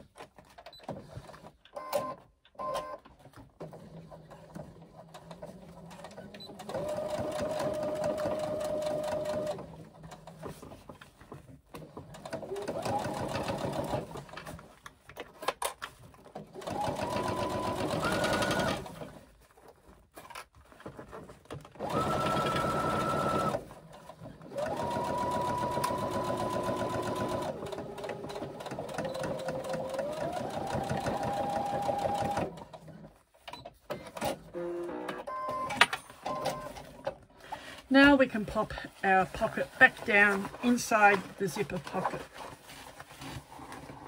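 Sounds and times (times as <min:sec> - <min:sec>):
electric sewing machine stitching: 0:03.6 - 0:10.3, 0:12.0 - 0:14.4, 0:16.4 - 0:19.2, 0:21.7 - 0:33.1.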